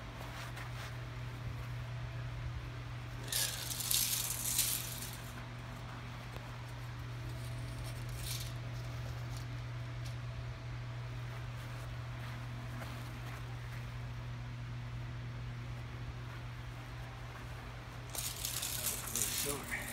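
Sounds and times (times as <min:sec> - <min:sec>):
steady low hum: 0:00.0 - 0:19.9
tape measure blade rattling: 0:03.2 - 0:05.3, 0:07.4 - 0:09.4, 0:18.1 - 0:19.9.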